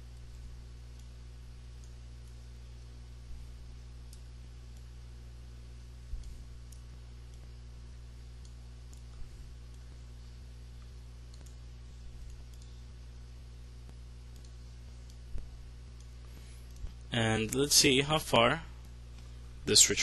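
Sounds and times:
low electrical hum: 0.0 - 20.0
computer mouse clicking: 0.1 - 2.5, 3.3 - 5.0, 6.1 - 7.6, 8.4 - 12.9, 13.8 - 17.7.

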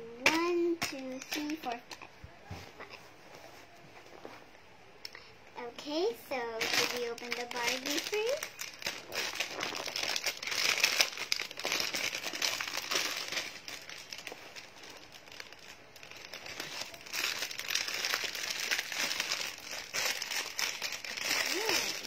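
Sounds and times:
plastic wrapper crinkling: 6.2 - 22.0.

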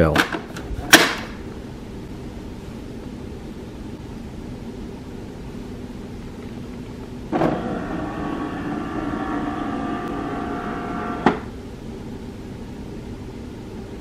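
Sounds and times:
printer mechanism whirring: 7.3 - 11.6
printer clunk: 9.9 - 11.5.

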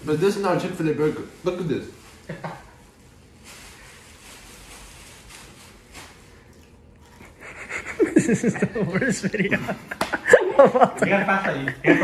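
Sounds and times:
people chewing food: 5.7 - 10.6.

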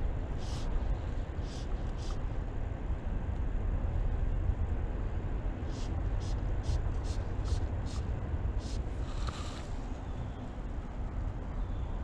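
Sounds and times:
steady low rumble: 0.0 - 12.0
fly line hissing through hand: 0.4 - 0.7, 8.6 - 9.7.

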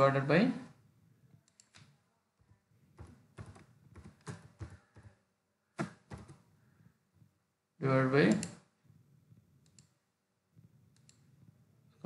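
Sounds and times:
computer keyboard keystrokes: 3.0 - 5.2.

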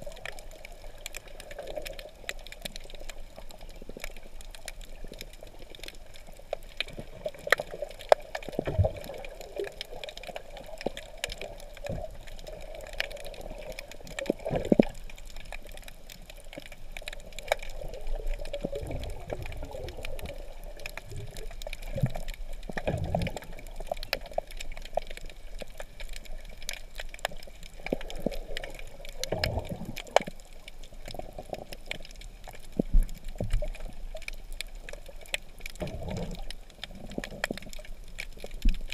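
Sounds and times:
low water surges: 0.0 - 38.9
muffled underwater water wash: 0.0 - 38.9
sharp underwater clicks and crackles: 0.0 - 38.9.

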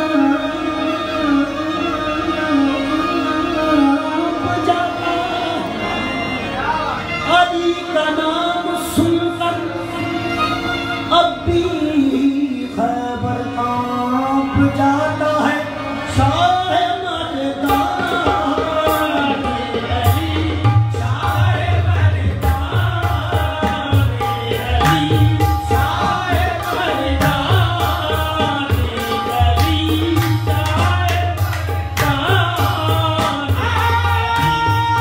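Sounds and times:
men singing: 0.0 - 6.3, 11.1 - 35.0
harmonium chords and melody: 0.0 - 35.0
hand drumming: 22.4 - 35.0.

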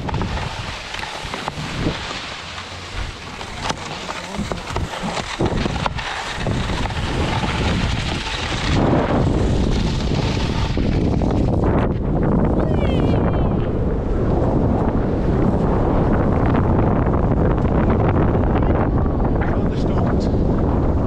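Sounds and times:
knocks and crunches on snow: 0.0 - 12.1
wind buffeting microphone: 0.0 - 21.0.

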